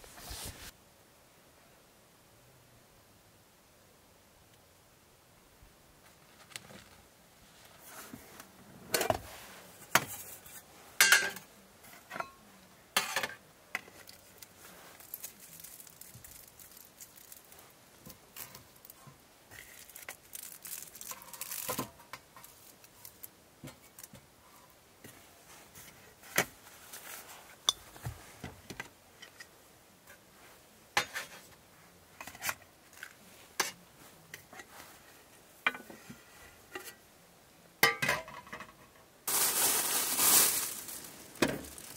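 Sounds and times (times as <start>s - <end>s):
rustling: 0.0s - 0.8s, 13.8s - 28.4s, 39.3s - 41.9s
cookware clinking and knocking: 11.0s - 11.4s.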